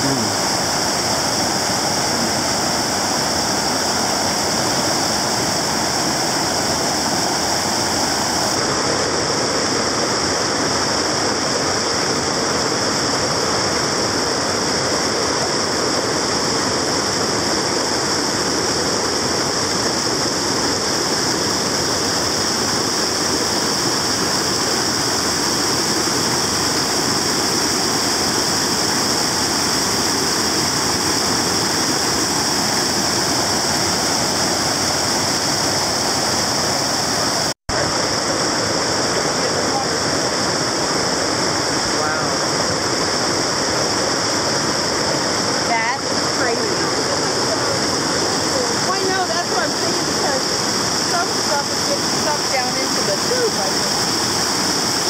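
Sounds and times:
water rushing around pipe: 0.0s - 55.0s.

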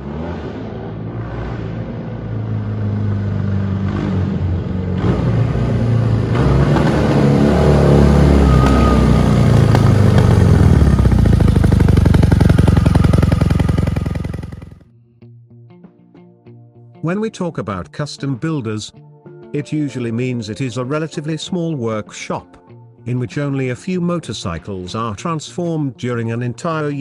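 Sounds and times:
motorcycle engine revving: 0.0s - 14.9s.

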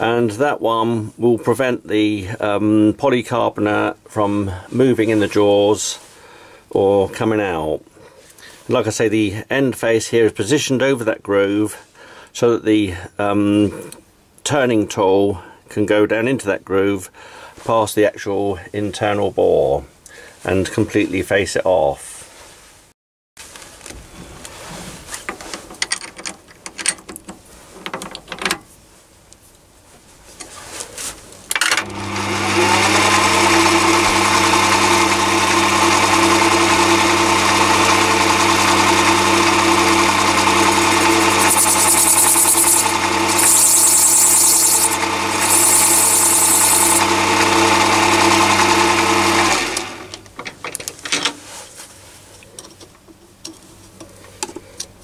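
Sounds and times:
lathe motor and gears running: 31.8s - 50.2s
high hiss of cutting tool: 40.4s - 47.1s.

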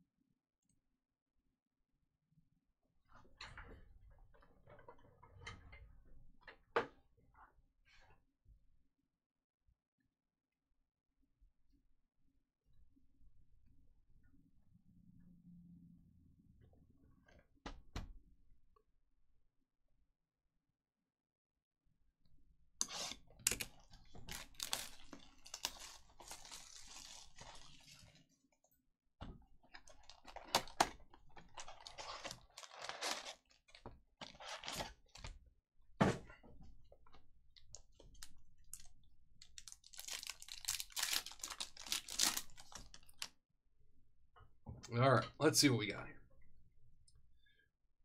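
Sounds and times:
plastic wrapper crinkling and tearing: 23.5s - 28.2s, 29.7s - 35.3s, 37.7s - 43.3s.

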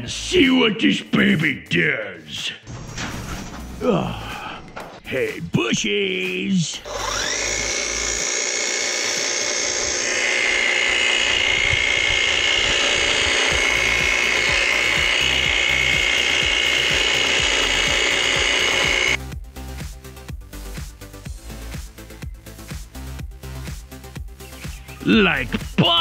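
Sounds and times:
hedge trimmer whining: 6.8s - 19.2s.

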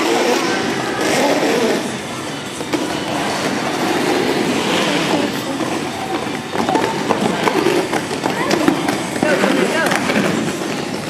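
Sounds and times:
roller skate wheels rolling on wood: 0.0s - 11.0s
skate wheel clacks: 2.4s - 11.0s.

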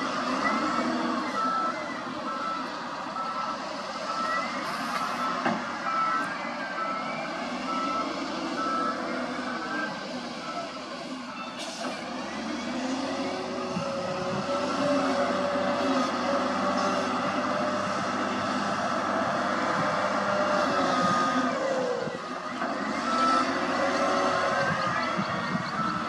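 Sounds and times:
wheel loader diesel engine: 0.0s - 26.0s
reversing alarm beeping: 0.3s - 14.5s, 19.8s - 26.0s.

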